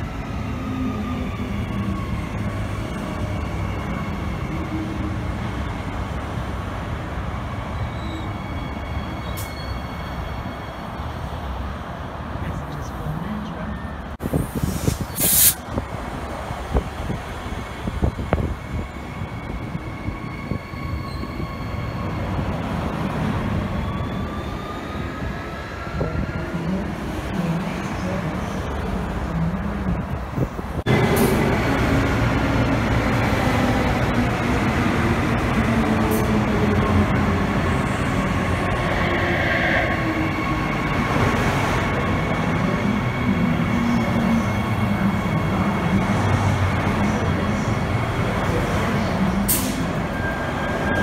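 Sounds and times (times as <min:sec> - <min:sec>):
wheels rumbling on rails: 0:00.0 - 0:51.0
electric train passing: 0:15.4 - 0:51.0.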